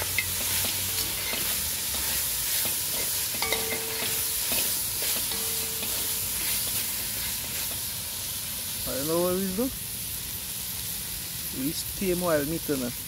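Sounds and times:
metal spoon scraping wok: 0.0 - 7.9
meat sizzling in hot oil: 0.0 - 13.0.

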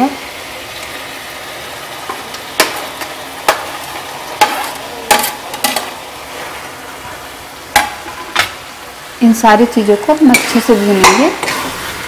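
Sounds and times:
food sizzling in oil: 0.0 - 12.0
spoon clinking and scraping pan: 4.4 - 6.0, 10.3 - 11.8.

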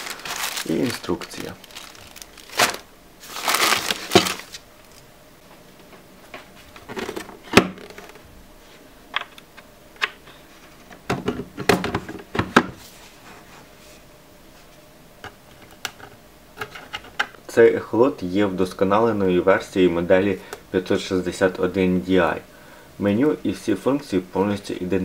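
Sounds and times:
plastic bag crinkling: 0.0 - 5.0.

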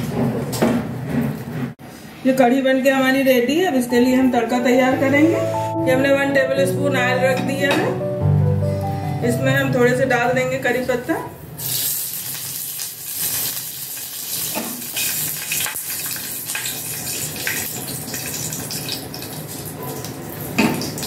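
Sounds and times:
leaves sizzling in hot oil: 11.6 - 21.0.

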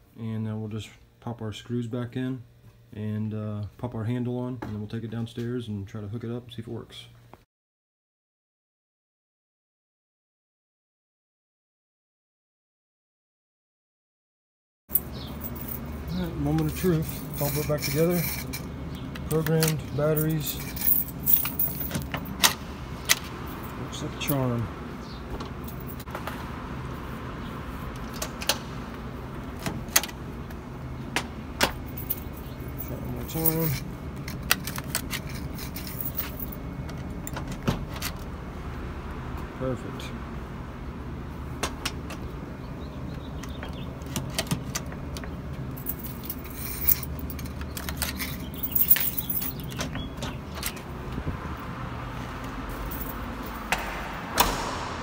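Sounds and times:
keys jangling: 14.9 - 18.7, 19.6 - 22.6, 25.6 - 26.1, 31.6 - 36.6, 45.8 - 49.9, 52.8 - 53.6
low hum: 51.0 - 55.0.

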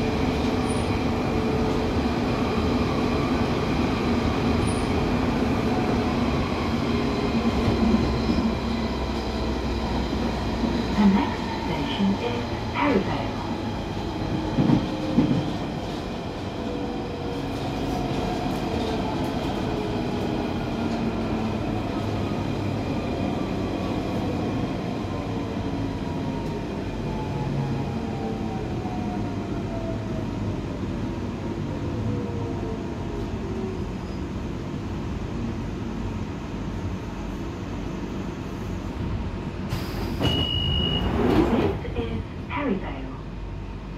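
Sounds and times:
train wheels rumbling on track: 0.0 - 27.4
train doors hissing open: 39.6 - 41.8
brief beep: 40.2 - 41.2.

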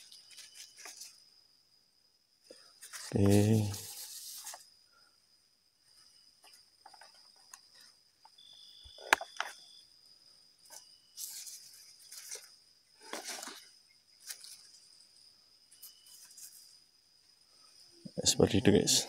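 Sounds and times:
leaves rustling: 0.0 - 1.2, 2.8 - 4.6, 10.6 - 16.8
high-pitched insect drone: 0.0 - 19.0.

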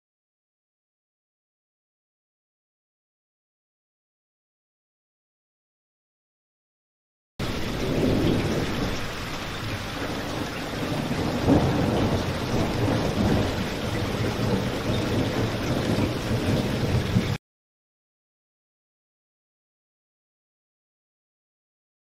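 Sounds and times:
heavy rain: 7.4 - 17.4
low rumble of thunder: 7.4 - 17.4.

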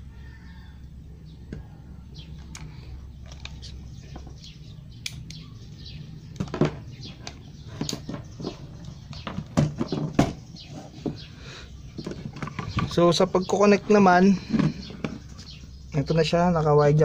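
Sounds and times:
low steady hum: 0.0 - 17.0
clicks and knocks of handled parts: 2.4 - 5.4, 6.3 - 10.4.

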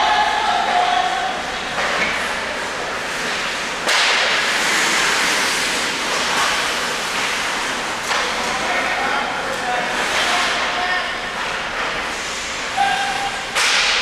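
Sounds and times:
skates scraping on ice: 3.2 - 8.6.

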